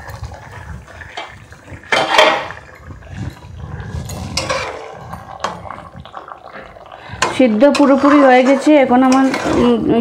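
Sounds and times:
metal spatula scraping in pan: 0.0 - 10.0
metal pan lid clattering: 1.9 - 2.6.

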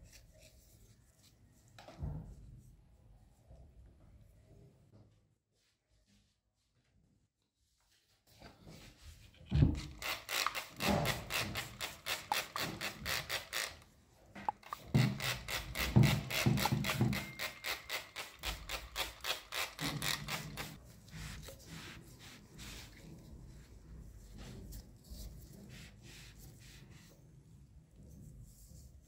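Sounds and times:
spray bottle squirting: 9.9 - 13.8, 14.5 - 20.8.

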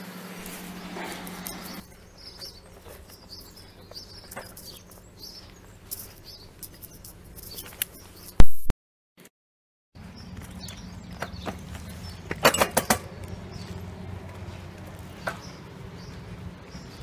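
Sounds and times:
steady buzz: 0.0 - 7.4
birds chirping: 0.0 - 8.4, 10.0 - 17.0.

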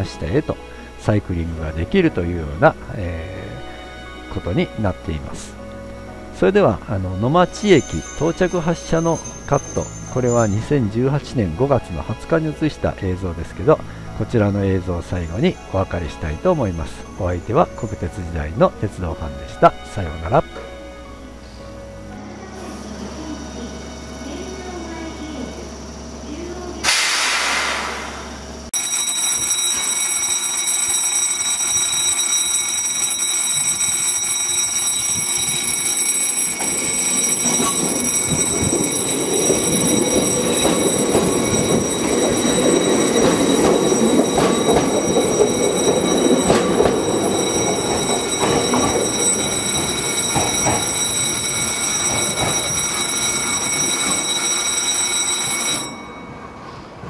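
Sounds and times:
electric train passing: 0.0 - 29.4, 30.0 - 57.0
wheels clacking over rail joints: 35.4 - 55.8.

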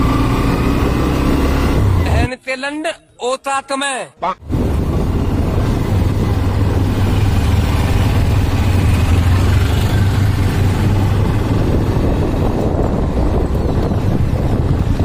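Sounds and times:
wind noise: 4.4 - 15.0
motorcycle engine through loud exhaust: 4.6 - 15.0.

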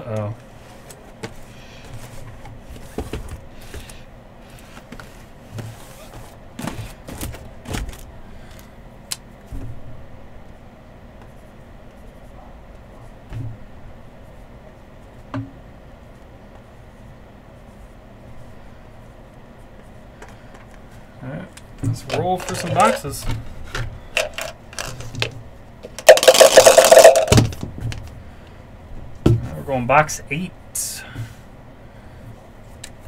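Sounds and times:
cardboard boxes tapping and scraping: 1.2 - 3.9.

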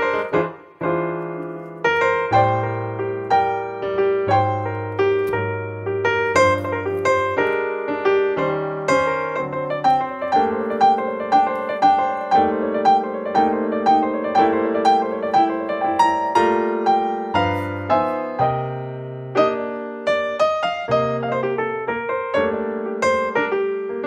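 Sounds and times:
gentle piano melody: 0.0 - 24.0.

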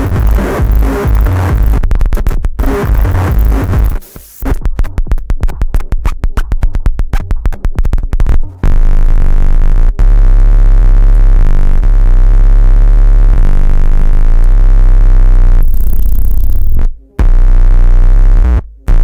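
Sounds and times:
harsh distorted electronic noise: 0.0 - 19.0.

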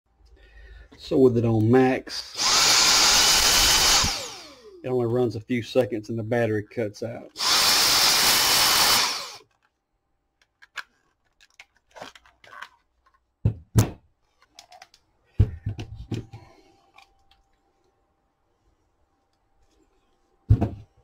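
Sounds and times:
handheld vacuum motor running: 2.3 - 4.7, 7.4 - 9.4.

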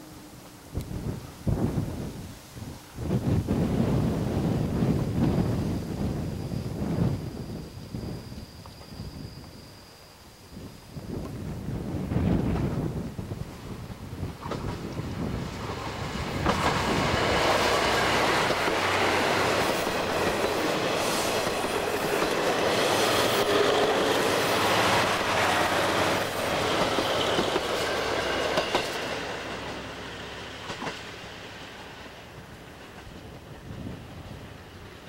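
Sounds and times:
train wheels clattering over rail joints: 14.3 - 29.9, 30.5 - 31.6.

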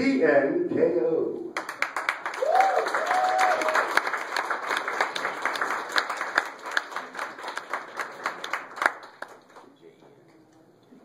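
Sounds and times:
audience applauding: 1.6 - 9.8
person whooping: 2.4 - 3.8.

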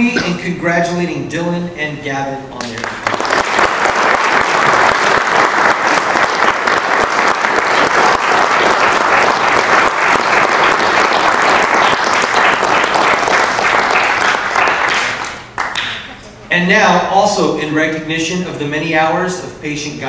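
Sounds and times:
audience applauding: 2.6 - 16.1.

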